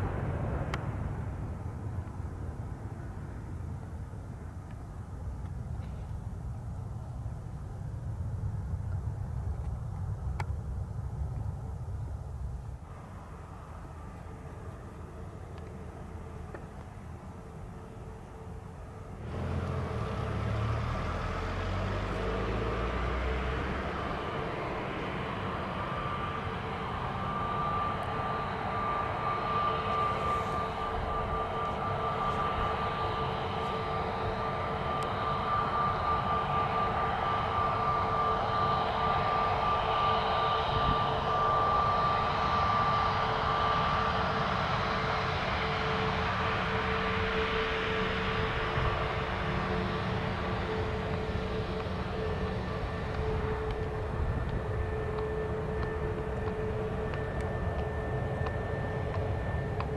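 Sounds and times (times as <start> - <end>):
low rumble: 0.0 - 14.7
jet engines whining: 0.0 - 59.9.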